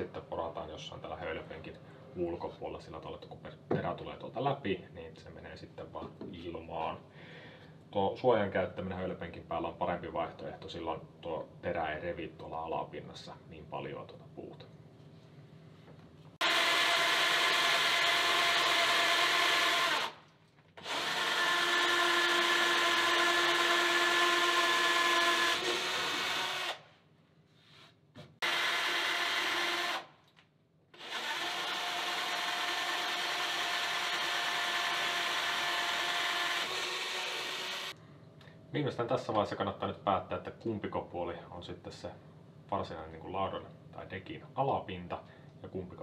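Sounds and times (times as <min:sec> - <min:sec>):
cordless drill whining: 0:16.4 - 0:20.2, 0:20.8 - 0:26.8, 0:28.4 - 0:30.1, 0:31.0 - 0:38.0.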